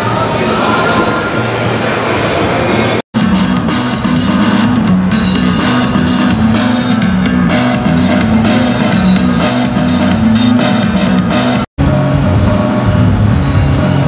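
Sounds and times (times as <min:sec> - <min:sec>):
rock music with guitar and drums: 0:03.2 - 0:14.0.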